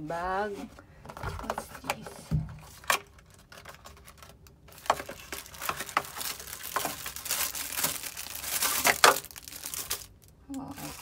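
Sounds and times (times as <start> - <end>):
plastic packaging crinkling: 2.6 - 11.0.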